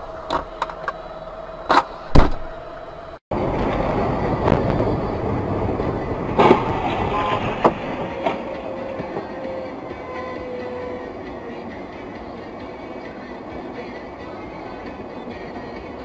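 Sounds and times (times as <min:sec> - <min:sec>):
road traffic noise: 0:00.0 - 0:16.0
heavy thump: 0:02.1 - 0:02.5.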